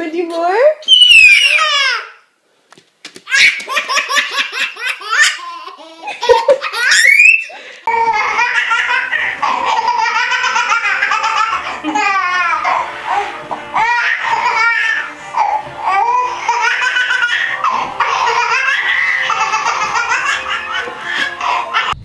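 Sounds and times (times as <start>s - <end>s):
baby belly laughing: 3.2s - 13.2s, 13.8s - 22.0s
second baby laughing: 3.3s - 12.8s, 16.1s - 22.0s.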